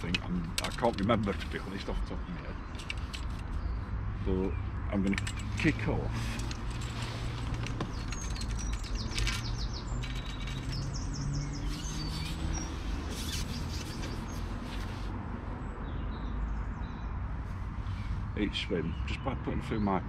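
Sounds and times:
songbirds chirping and singing: 0.0s - 20.0s.

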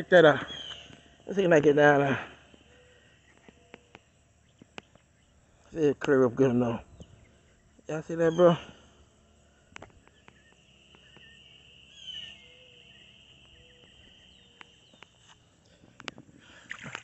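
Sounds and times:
high insect buzz: 0.0s - 17.0s
bird chirps: 0.3s - 1.7s, 2.4s - 5.5s, 6.8s - 15.8s.

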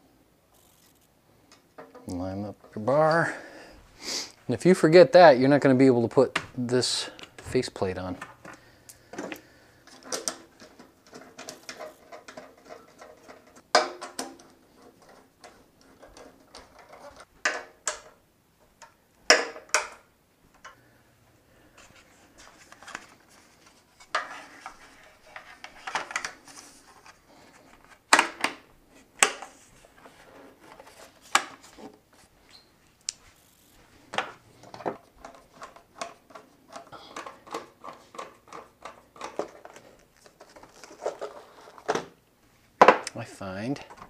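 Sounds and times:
tools and parts clicking and clinking: 8.1s - 18.2s, 34.1s - 42.0s.

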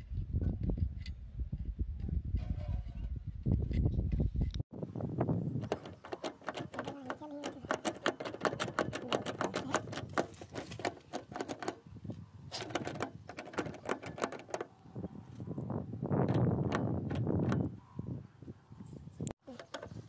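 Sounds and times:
contactor clicking and clacking: 5.6s - 11.8s.

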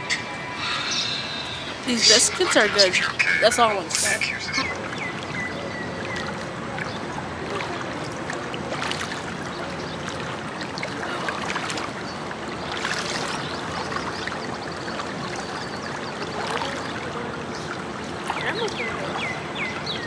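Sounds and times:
pool water sloshing: 0.0s - 20.0s
water splashes: 0.0s - 20.0s.

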